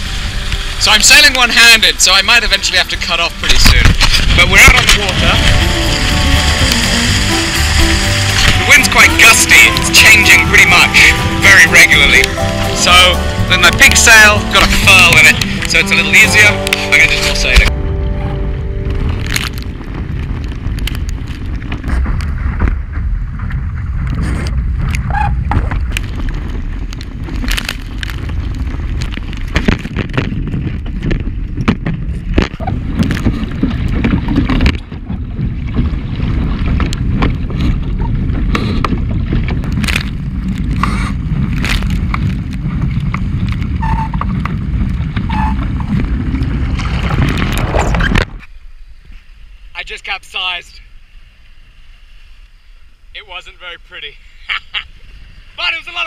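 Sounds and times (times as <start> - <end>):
wind buffeting microphone: 0.0 - 50.0
water slapping against hull: 19.2 - 48.5.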